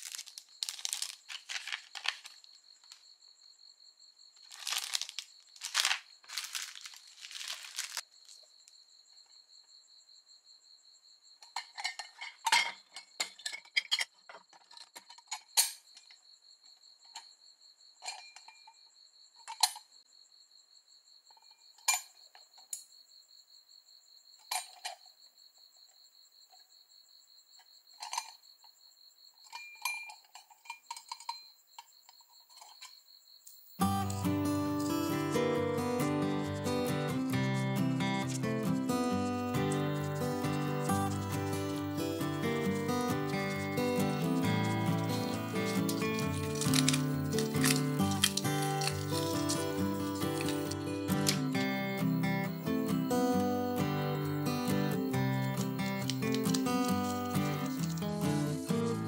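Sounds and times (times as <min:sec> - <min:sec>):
plastic packaging crinkling: 0:00.0 - 0:03.0, 0:04.4 - 0:08.5, 0:42.6 - 0:51.6, 0:55.8 - 0:58.1
light metallic clicks and clinks: 0:29.4 - 0:31.5.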